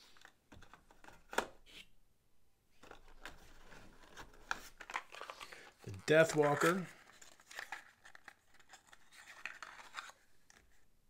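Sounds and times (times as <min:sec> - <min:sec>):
packaging crinkling and clicking: 0:02.8 - 0:10.8.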